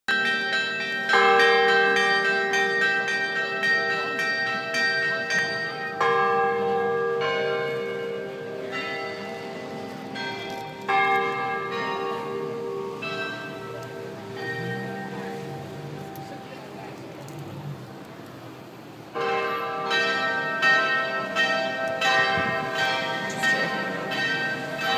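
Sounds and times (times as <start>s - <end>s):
heavy church bell strikes: 0.1s - 16.8s, 19.1s - 24.9s.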